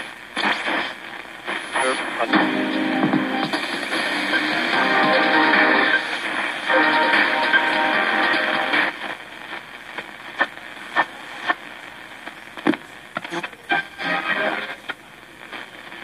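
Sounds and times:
music from radio: 0.0 - 16.0
radio static and hiss: 0.0 - 16.0
radio signal blips: 1.5 - 9.2.

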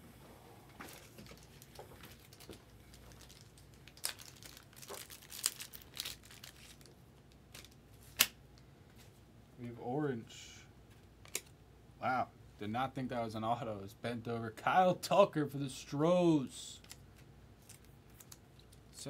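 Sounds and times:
foil wrapper crinkling and tearing: 0.9 - 8.3.

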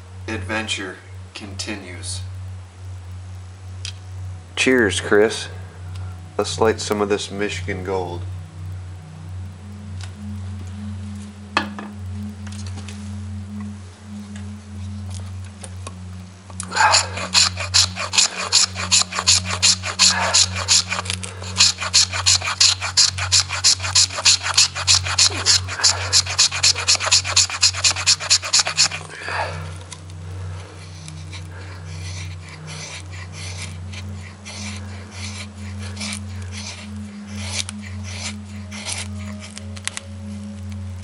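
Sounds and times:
knife scraping wood: 16.6 - 29.1, 31.0 - 40.0.

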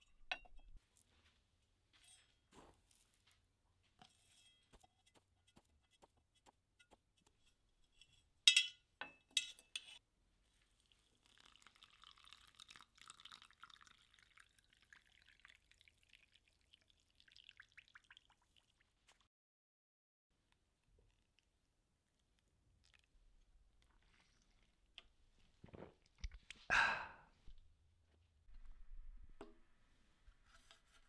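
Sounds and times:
metal clinks against steel cup: 8.5 - 10.0
water pouring into cup: 10.8 - 19.0.

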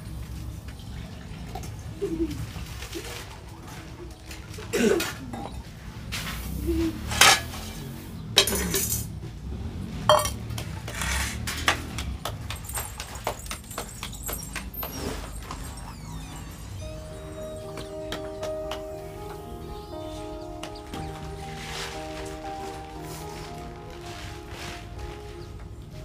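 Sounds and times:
metal dishes clinking: 8.4 - 9.1, 10.1 - 10.4
dishes scraping: 10.1 - 11.9.

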